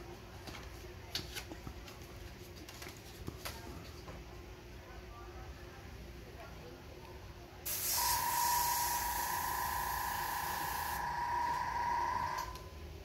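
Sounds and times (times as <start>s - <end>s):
airbrush hissing and whistling: 7.7s - 11.6s.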